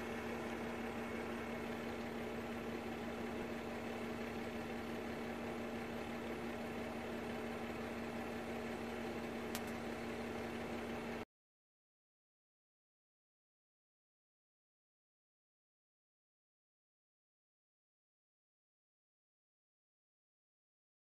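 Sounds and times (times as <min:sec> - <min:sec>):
steady mechanical hum: 0:00.0 - 0:11.3.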